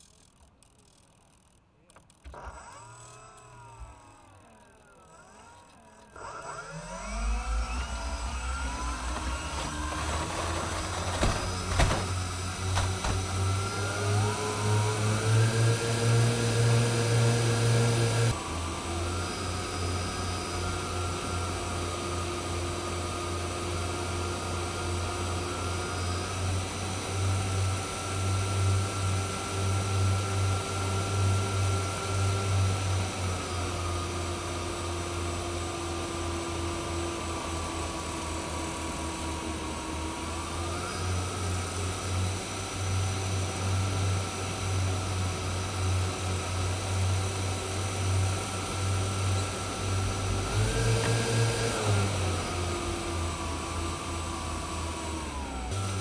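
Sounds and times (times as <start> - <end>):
model aircraft motors whining: 0.0 - 56.0.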